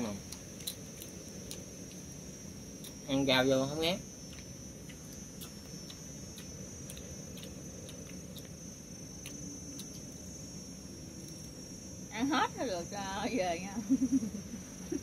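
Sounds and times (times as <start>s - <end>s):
crunchy chewing: 0.0s - 11.7s
high-pitched whine: 0.0s - 15.0s
low background hum: 0.0s - 15.0s.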